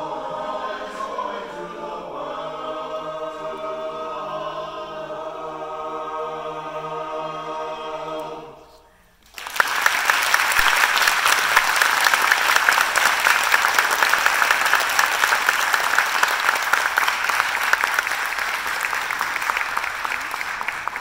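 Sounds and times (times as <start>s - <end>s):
audience applauding: 9.2s - 21.0s.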